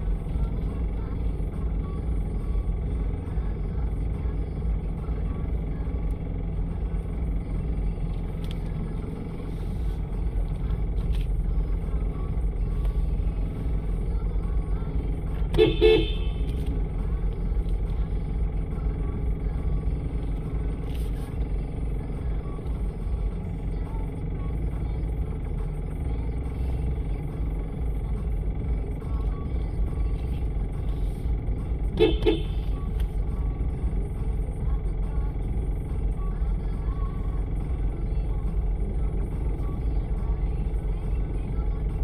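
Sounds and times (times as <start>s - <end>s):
car engine idling: 0.0s - 42.0s
car horn toot: 15.4s - 16.6s, 31.9s - 32.8s.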